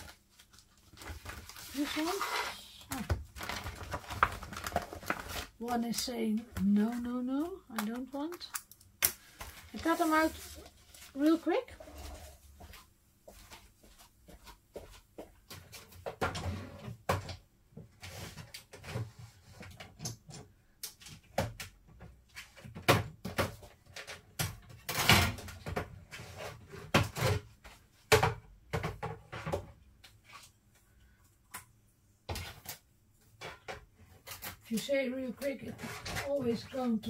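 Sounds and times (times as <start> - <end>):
paper rustling: 0.0 - 8.5, 9.2 - 12.7.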